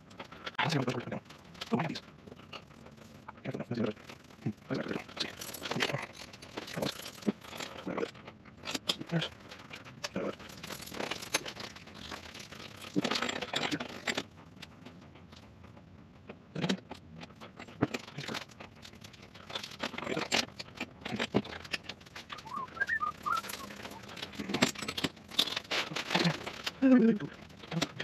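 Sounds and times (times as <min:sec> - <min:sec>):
short whistle-like notes: 0:22.4 - 0:24.1.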